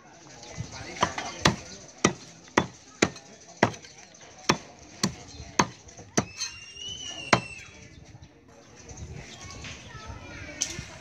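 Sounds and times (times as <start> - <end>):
knife chopping on cutting board: 1.0 - 3.8, 4.5 - 5.8.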